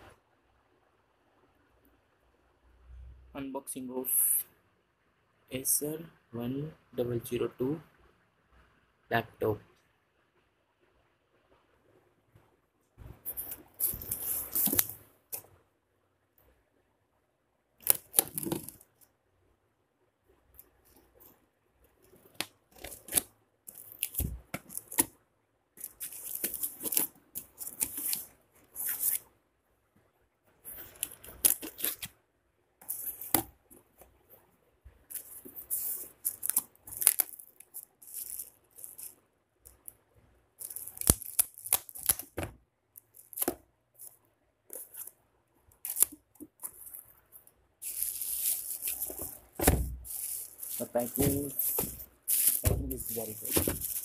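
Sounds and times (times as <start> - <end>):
cardboard and bubble wrap rustling: 13.0 - 15.0, 17.8 - 18.8, 22.2 - 25.1, 25.8 - 29.2, 30.6 - 32.1, 32.9 - 33.5, 35.1 - 39.2, 47.8 - 54.0
packing tape tearing: 17.8 - 18.8, 22.3 - 25.1, 25.8 - 29.2, 30.8 - 32.1, 35.1 - 39.2, 40.6 - 42.4, 43.0 - 44.1, 45.8 - 47.0, 47.8 - 54.0.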